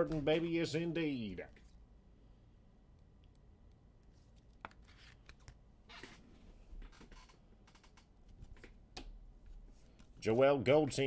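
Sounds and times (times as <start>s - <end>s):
cards rustling and scraping: 4.0s - 5.6s.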